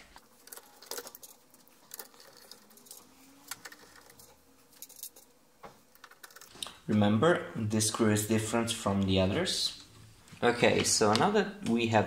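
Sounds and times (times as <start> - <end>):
screws and screwdriver clinking: 0.2 - 5.3.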